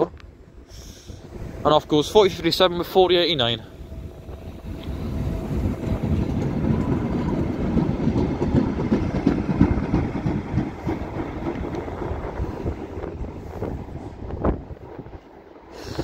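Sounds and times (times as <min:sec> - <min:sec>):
train wheels and motors rumbling: 0:00.0 - 0:16.0.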